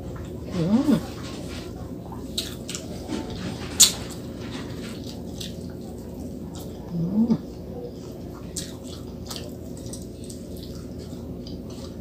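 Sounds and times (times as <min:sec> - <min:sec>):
wet chewing with lip smacks: 0:08.3 - 0:12.0.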